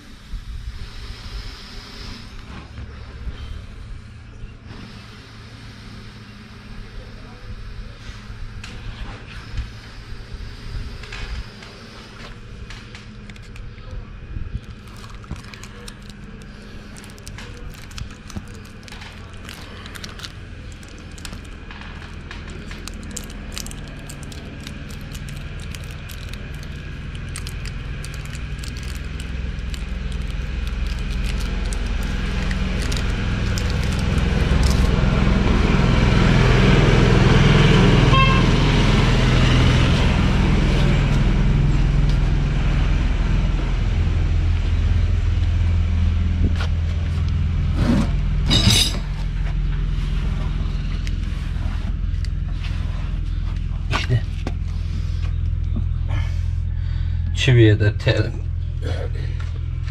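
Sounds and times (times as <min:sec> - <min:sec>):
vehicle engine running: 0:00.0 - 0:59.9.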